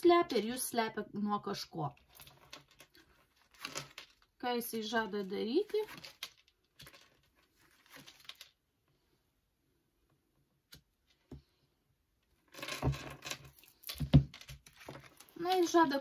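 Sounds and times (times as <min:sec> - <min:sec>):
cards rustling and sliding: 0:06.0 - 0:08.5.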